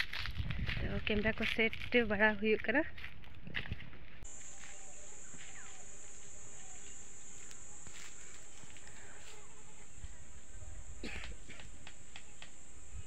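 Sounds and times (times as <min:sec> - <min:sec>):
insects buzzing: 0:04.2 - 0:13.0
faint clicks: 0:11.2 - 0:12.6.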